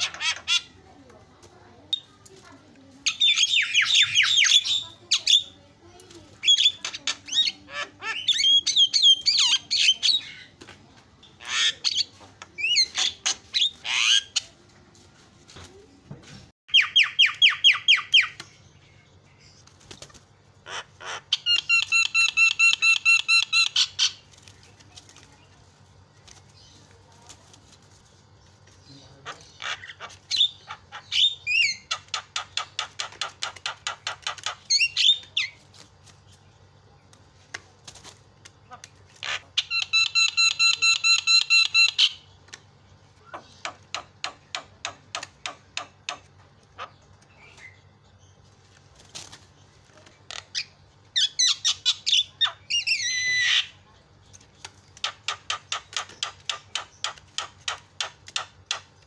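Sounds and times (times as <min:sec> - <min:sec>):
myna whistles and chattering calls: 0:20.7 - 0:24.2, 0:39.2 - 0:42.2, 0:50.3 - 0:53.8.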